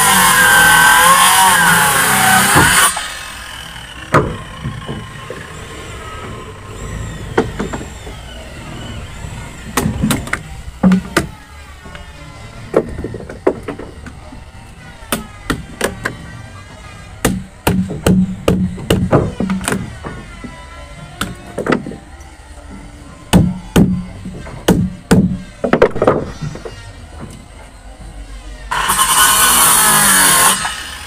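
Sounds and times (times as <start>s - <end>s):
hammer striking wood chisel: 2.0s - 3.0s, 4.1s - 5.5s, 9.8s - 11.4s, 15.1s - 16.2s, 17.2s - 20.2s, 23.3s - 27.4s.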